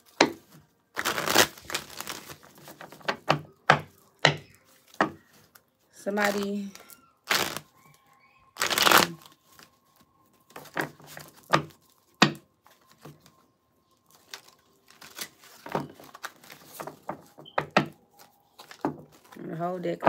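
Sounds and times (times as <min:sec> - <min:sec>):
cards riffling: 0:01.0 - 0:03.0, 0:06.2 - 0:07.7, 0:08.6 - 0:09.7.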